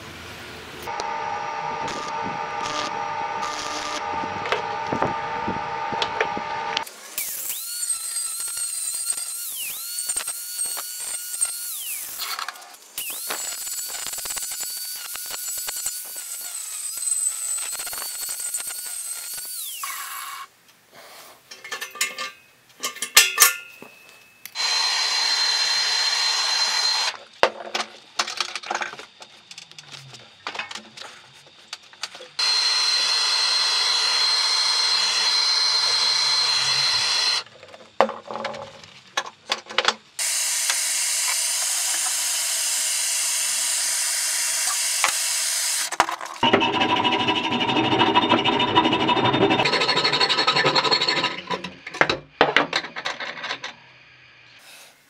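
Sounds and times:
steady hum: 0.0 - 6.8
angle grinder cutting: 0.9 - 20.5, 24.6 - 27.2, 32.4 - 37.4, 40.2 - 51.7
stick welding crackling: 1.9 - 4.6, 7.2 - 19.8
steady hiss: 54.4 - 55.0.

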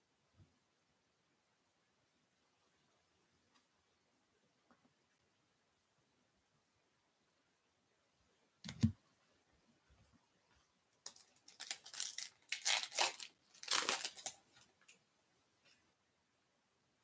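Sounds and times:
wrapper tearing and crinkling: 11.1 - 14.4.

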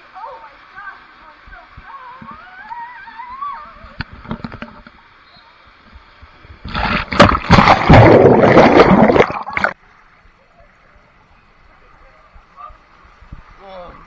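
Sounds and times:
water splashing over microphone: 6.5 - 9.8.

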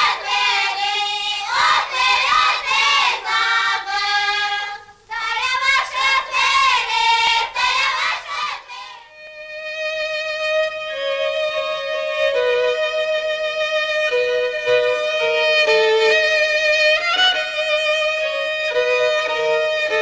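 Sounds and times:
high voices singing folk song: 0.0 - 9.3
fiddle playing long notes: 9.0 - 20.0.

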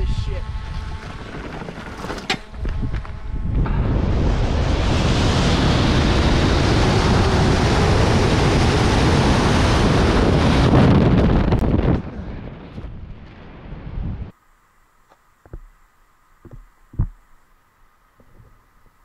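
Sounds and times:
rushing wind on microphone: 0.0 - 14.3.

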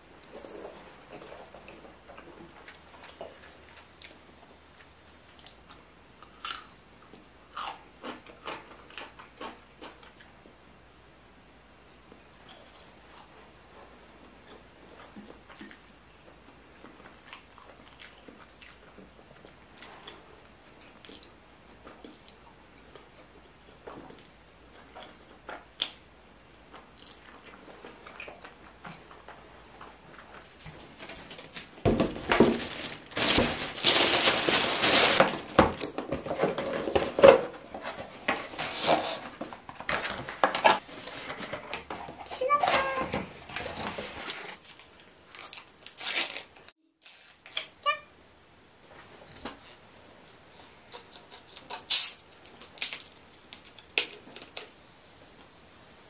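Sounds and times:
chewing noodles: 14.4 - 26.0
cardboard and paper rustling: 30.0 - 45.1.

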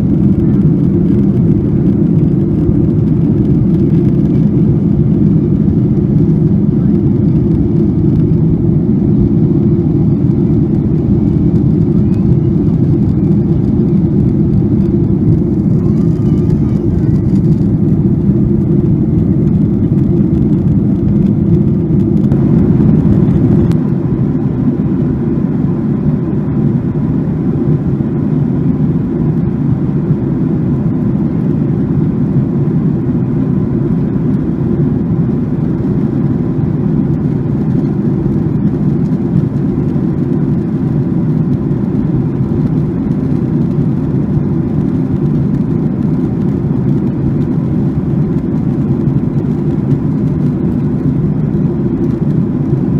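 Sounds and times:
faint steady whine: 0.0 - 52.9
jet engine rush: 0.0 - 52.9.

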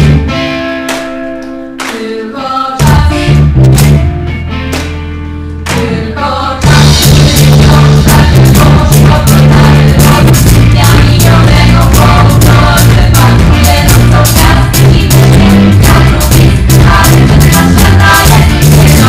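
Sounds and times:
women singing together: 1.8 - 3.3, 5.7 - 19.0
live band playing: 6.6 - 19.0.

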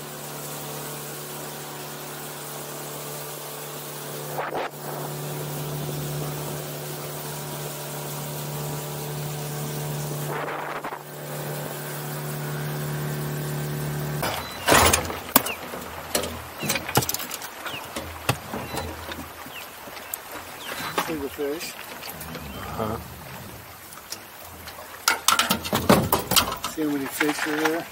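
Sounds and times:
outboard motor running: 0.0 - 27.9
gear knocking and clattering in boat: 14.2 - 22.6, 23.2 - 27.9.

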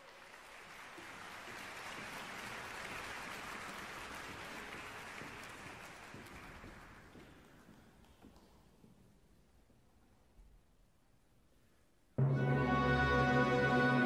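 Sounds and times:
audience applause: 0.0 - 7.5.

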